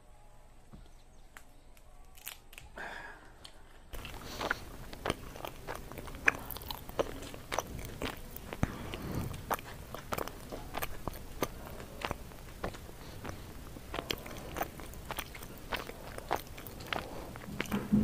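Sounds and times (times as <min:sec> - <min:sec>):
wet crunchy chewing: 0:03.9 - 0:18.0
sharp mouth clicks: 0:04.0 - 0:18.0.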